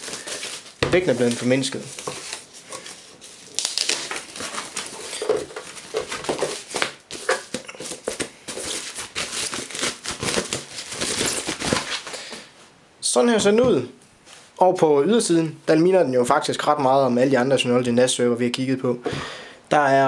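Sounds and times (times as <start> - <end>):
plastic wrapping crinkling: 0.0 - 12.5.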